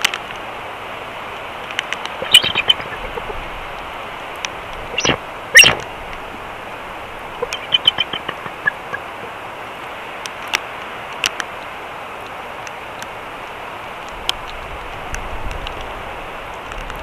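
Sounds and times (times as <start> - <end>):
steady hiss: 0.0 - 16.7
faint clicks: 1.3 - 6.2, 7.4 - 9.3, 10.2 - 13.1
eagle chirping softly: 2.2 - 3.4, 4.9 - 5.8, 7.4 - 9.3.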